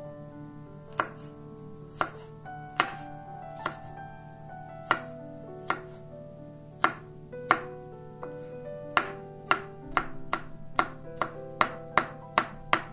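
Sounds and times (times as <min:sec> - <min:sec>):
soft background music: 0:00.0 - 0:12.9
knife chopping on wooden board: 0:00.9 - 0:01.3, 0:01.9 - 0:03.0, 0:03.6 - 0:03.9, 0:04.8 - 0:06.0, 0:06.8 - 0:07.7, 0:08.3 - 0:12.9.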